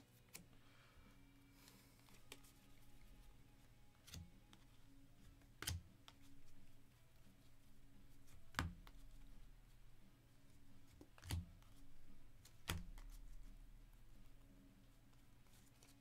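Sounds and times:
cards being flipped by hand: 0.1 - 0.6, 1.6 - 3.4, 4.0 - 6.8, 8.2 - 9.4, 10.8 - 13.5, 15.1 - 16.0
sharp card snaps: 5.6 - 6.2.

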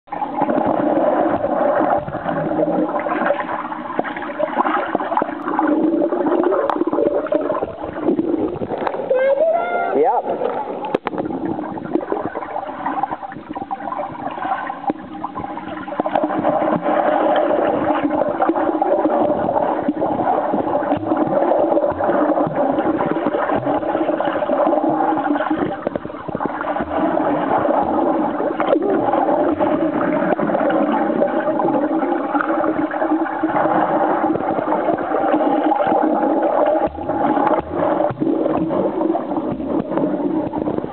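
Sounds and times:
churning water and bubbles: 0.1 - 40.9
muffled underwater hum: 0.1 - 40.9.

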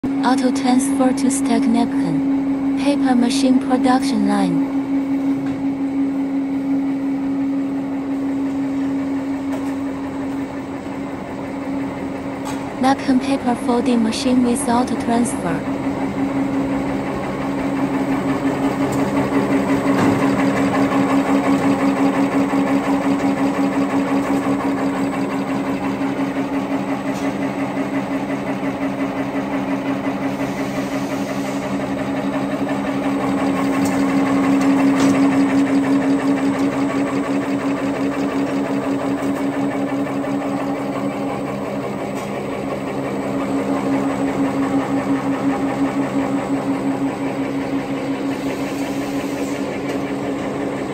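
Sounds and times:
machine hum: 0.0 - 50.9
rhythmic mechanical clatter: 11.6 - 50.9.

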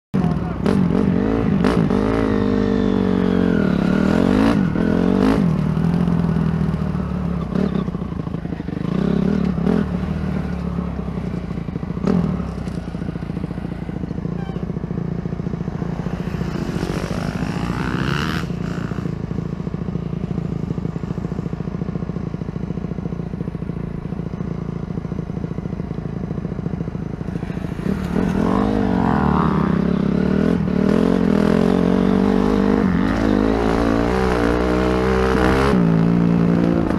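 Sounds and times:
dirt bike engine revving: 0.2 - 7.9, 14.5 - 19.2, 27.1 - 36.9.

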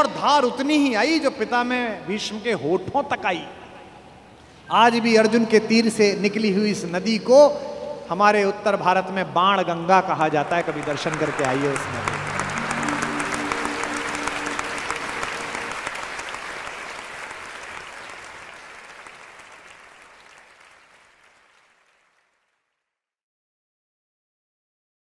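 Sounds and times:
audience applauding: 10.1 - 22.6
held musical notes: 10.4 - 17.2.

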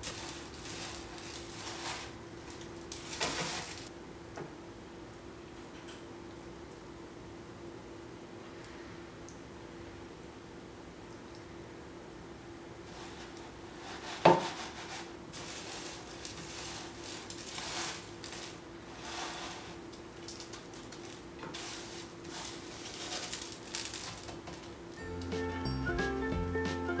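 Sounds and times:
crunchy pieces rustling and crackling: 0.0 - 3.9, 20.2 - 24.6.

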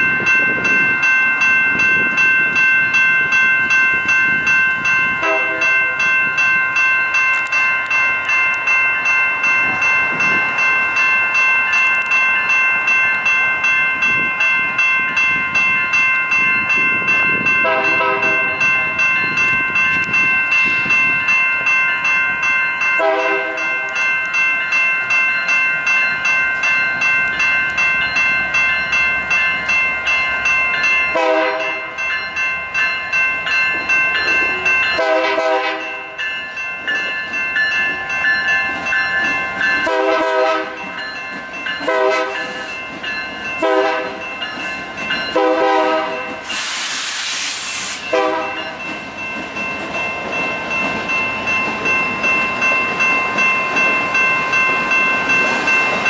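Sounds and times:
railroad crossing bells ringing: 0.0 - 56.0
train horn blasts: 5.2 - 5.7, 17.6 - 18.6, 23.0 - 23.7, 31.1 - 31.9, 35.0 - 36.1, 39.8 - 40.8, 41.8 - 42.6, 43.6 - 44.2, 45.3 - 46.4, 48.1 - 48.7.

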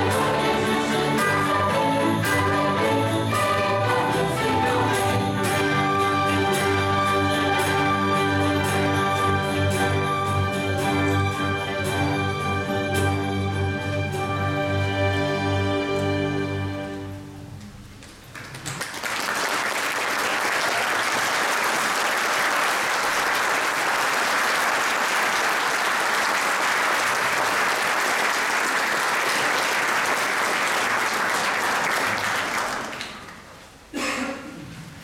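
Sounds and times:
audience applauding: 0.0 - 10.8, 18.0 - 33.7.

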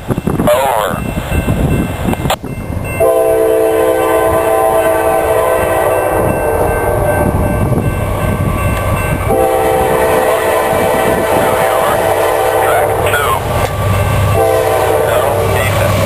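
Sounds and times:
locomotive air horn chord: 3.0 - 7.2, 9.3 - 13.2, 14.3 - 15.8.

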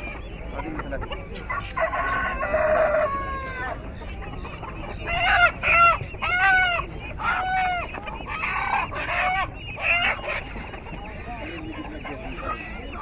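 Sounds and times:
chickens squawking: 0.0 - 13.0
rooster crowing: 1.6 - 3.8.

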